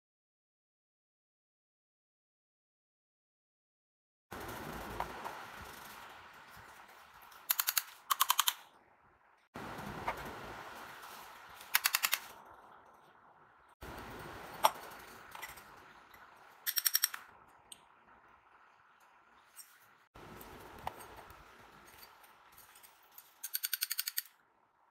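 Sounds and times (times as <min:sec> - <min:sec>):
rapid clicks: 0:04.4 - 0:08.7, 0:11.6 - 0:12.4, 0:16.6 - 0:17.9.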